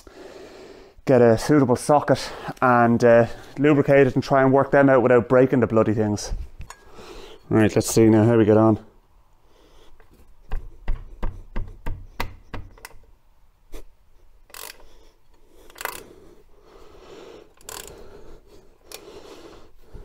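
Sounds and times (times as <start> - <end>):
socket ratchet clicking: 14.5 - 15.0, 15.6 - 16.2, 17.5 - 18.0.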